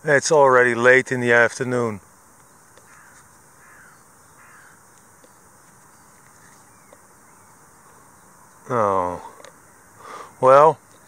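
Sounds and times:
steady background hiss: 0.0s - 11.0s
distant crows cawing: 2.4s - 11.0s.

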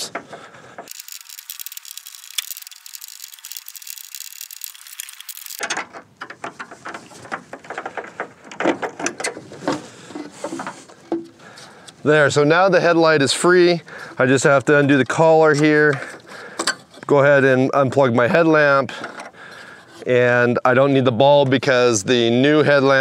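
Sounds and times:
screwdriver fast thin ticking: 0.9s - 5.6s.

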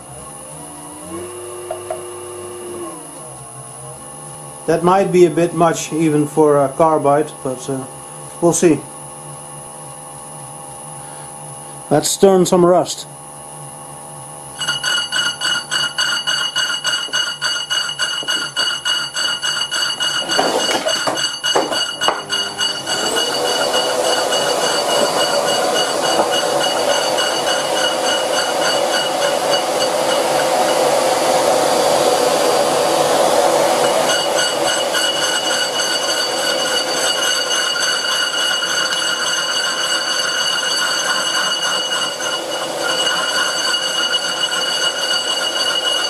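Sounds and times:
lathe motor whine: 0.0s - 5.6s, 14.2s - 46.0s
lathe tool scraping metal: 14.6s - 46.0s
suction hose whine and rush: 21.9s - 46.0s.

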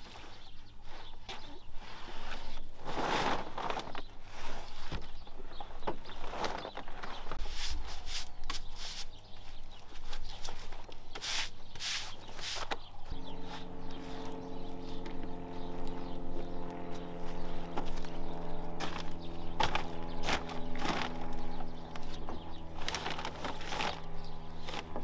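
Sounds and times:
brush sweeping sawdust: 7.4s - 9.2s, 11.1s - 14.7s
steady engine hum: 11.6s - 25.0s.

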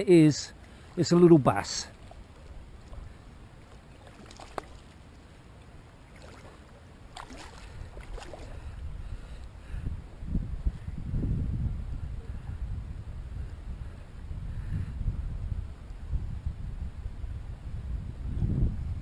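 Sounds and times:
light water splashes: 0.0s - 9.6s
shallow water lapping: 0.4s - 10.9s
wind rumble on microphone: 6.1s - 19.0s.

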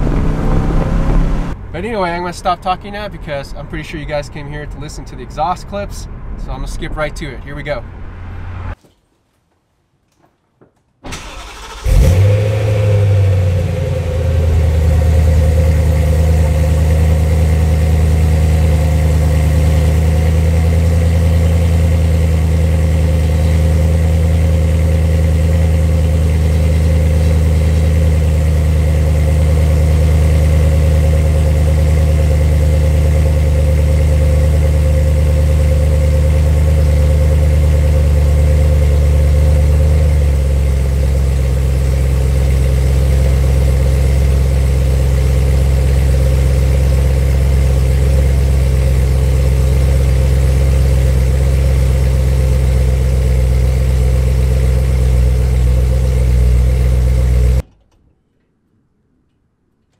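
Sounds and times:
car engine cold start and idle: 11.0s - 57.6s.

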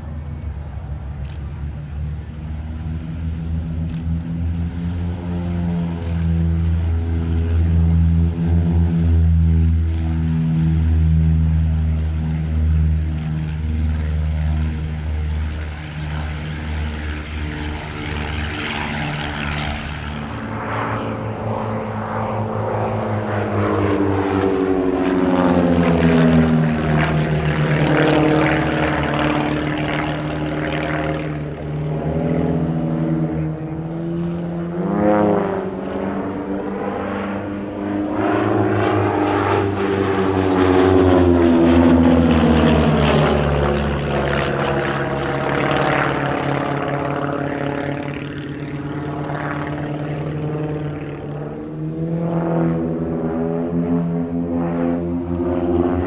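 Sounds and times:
propeller aircraft engines droning: 0.0s - 56.0s.

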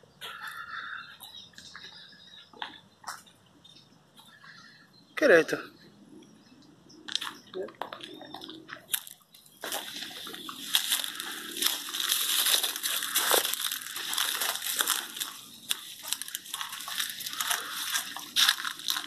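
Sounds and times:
twigs snapping: 8.8s - 19.0s
leaves and branches rustling: 8.9s - 19.0s.

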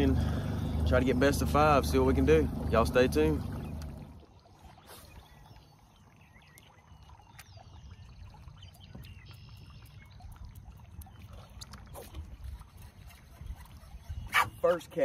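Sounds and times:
low steady rumble: 0.0s - 4.4s.

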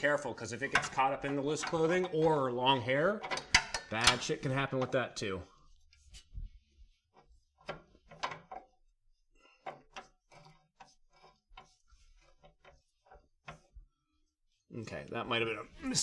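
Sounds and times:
hand tools clicking and knocking: 0.4s - 5.2s, 7.2s - 8.8s.

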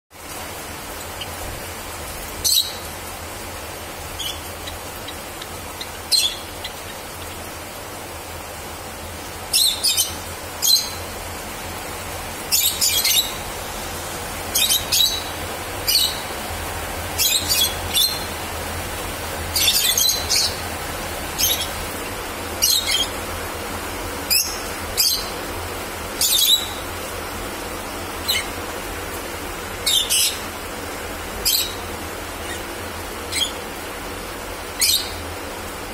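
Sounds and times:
steady low hiss: 0.2s - 35.9s
sparrows chip calls: 4.1s - 7.4s.

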